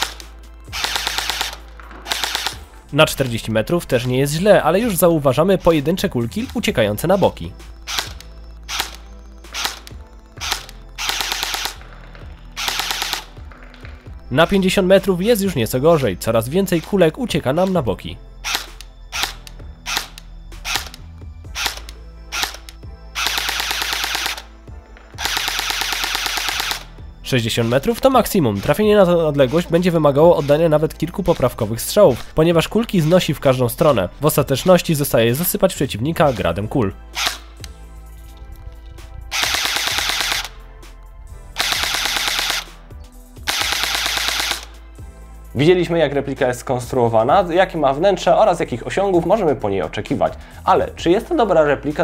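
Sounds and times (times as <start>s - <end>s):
airsoft gun firing: 0.0s - 2.7s, 9.6s - 11.8s, 12.6s - 13.3s, 21.6s - 24.5s, 25.2s - 26.9s, 39.3s - 40.6s, 41.6s - 42.8s, 43.4s - 44.8s.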